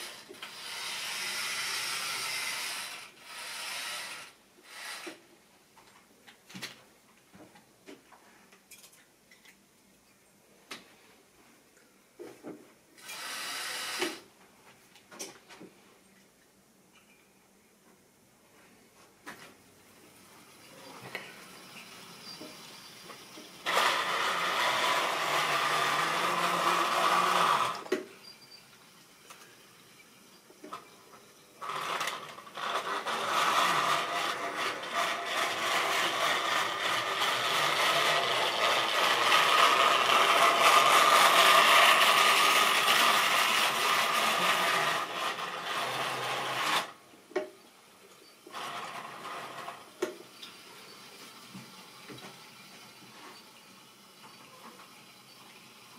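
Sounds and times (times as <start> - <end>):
electric motor whirring: 0.0 - 5.2, 23.6 - 27.9, 31.6 - 46.9.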